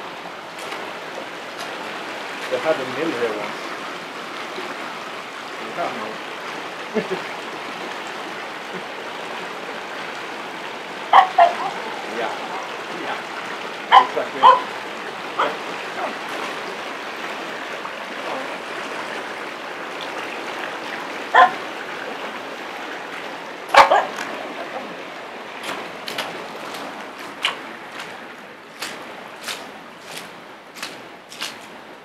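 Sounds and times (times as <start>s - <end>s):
waterfall and stream rushing: 0.0s - 32.0s
dog barking sharply: 11.1s - 11.8s, 13.9s - 14.7s, 15.4s - 15.6s, 21.4s - 21.6s, 23.7s - 24.2s.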